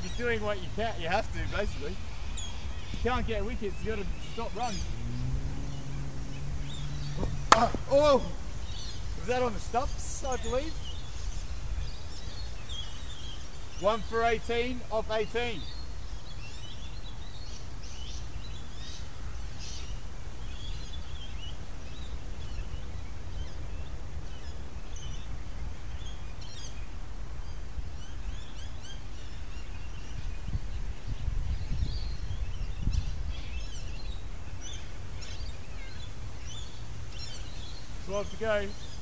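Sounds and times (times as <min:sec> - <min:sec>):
low outdoor rumble: 0:00.0 - 0:26.1
birds chirping: 0:00.0 - 0:39.0.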